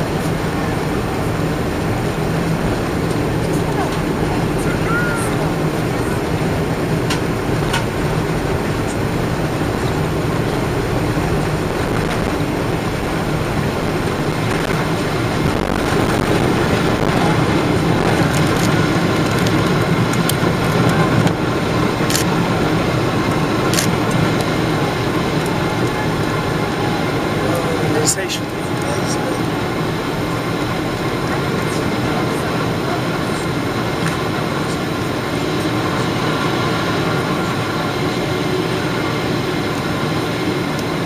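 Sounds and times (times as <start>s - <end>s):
jet engines at takeoff thrust: 0.0s - 41.0s
runway rumble: 0.0s - 41.0s.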